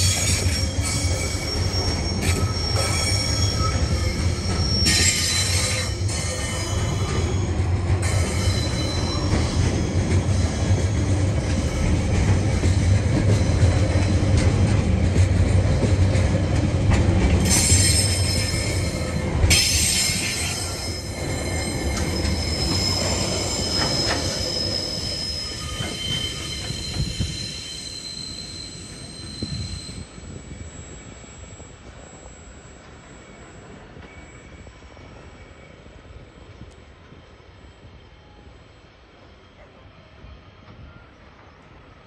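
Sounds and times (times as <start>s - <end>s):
high-pitched wheel squeal: 0.0s - 10.9s, 17.4s - 34.6s
freight train wheels rumbling: 0.0s - 42.0s.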